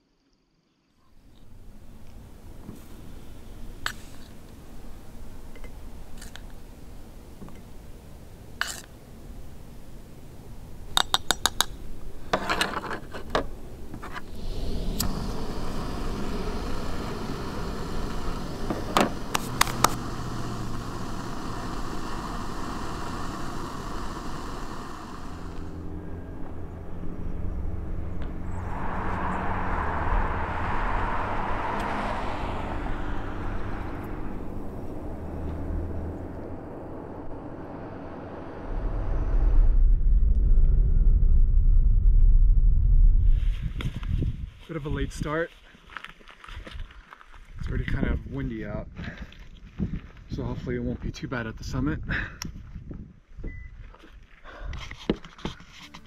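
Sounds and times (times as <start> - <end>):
low car rumble: 1.1 - 12.4, 13.2 - 44.4
gas stove burner hissing: 13.6 - 25.9.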